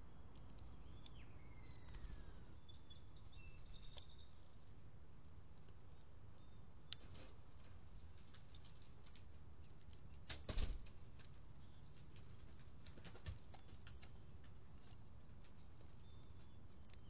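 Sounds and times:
bird pecking at a feeder: 0.1s - 17.0s.

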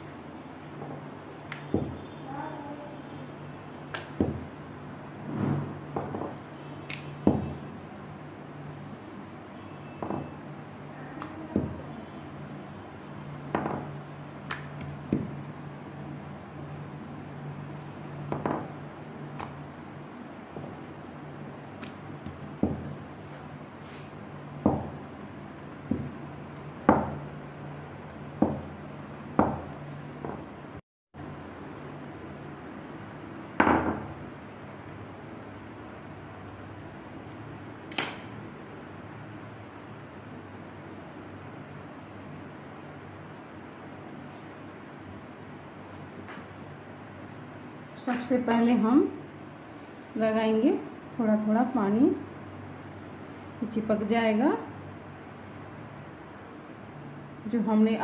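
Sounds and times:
steady low hum: 0.0s - 58.0s
rolling pin knocking on stone counter: 24.6s - 25.0s, 25.8s - 26.2s, 26.9s - 27.2s.

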